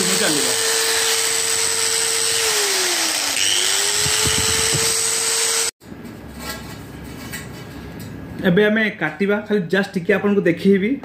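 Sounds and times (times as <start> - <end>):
angle grinder whining: 0.0 - 5.8.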